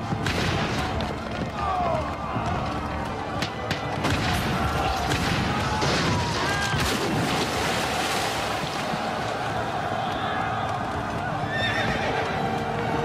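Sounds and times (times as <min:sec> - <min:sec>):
rushing river water: 0:05.8 - 0:13.0
large splash in water: 0:05.9 - 0:09.1.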